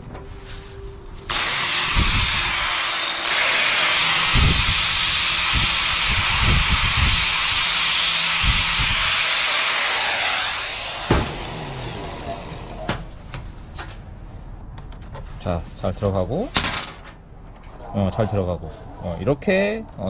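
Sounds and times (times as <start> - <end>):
angle grinder grinding steel: 1.3 - 12.9.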